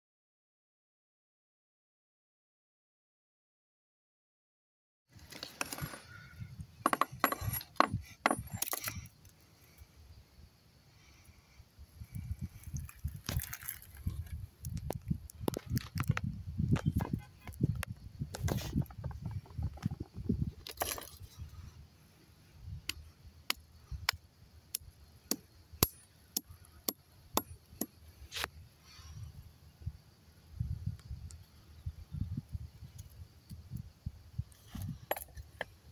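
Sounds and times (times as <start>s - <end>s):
hammer knocking on concrete: 6.8s - 8.4s.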